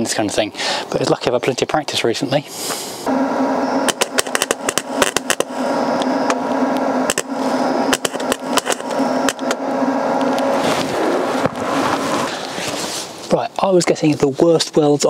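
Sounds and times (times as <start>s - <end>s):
welder hum: 3.1s - 13.2s
welding arc crackling and popping: 3.8s - 12.4s.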